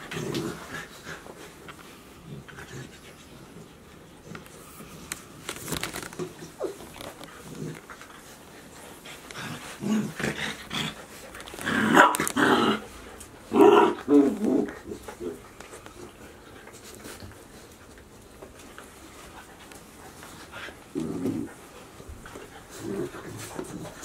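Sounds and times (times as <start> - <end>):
puppies growling: 0.0 - 24.0.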